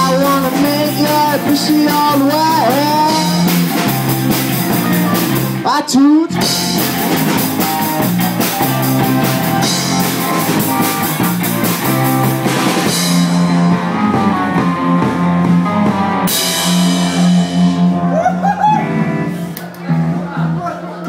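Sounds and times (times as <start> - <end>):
drum kit: 0.0 - 21.0
electric guitar: 0.0 - 21.0.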